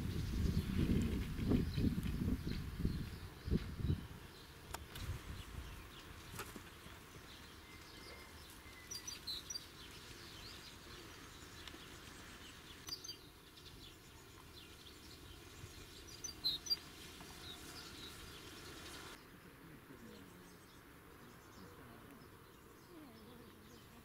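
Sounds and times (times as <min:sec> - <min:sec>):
small bird chirping: 0:00.0 - 0:19.2
outdoor background noise: 0:00.0 - 0:24.0.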